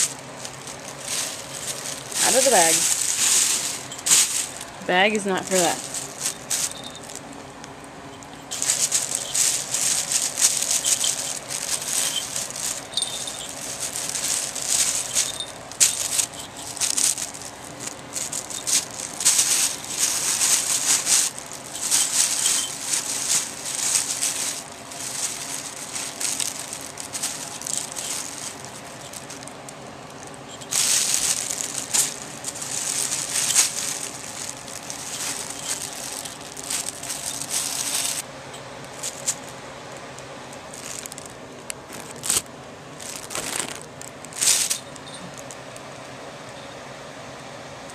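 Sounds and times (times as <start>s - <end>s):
collar bell jingling: 0.0s - 7.4s, 8.0s - 39.4s, 44.4s - 45.6s
plastic bag rustling and crinkling: 0.0s - 45.9s.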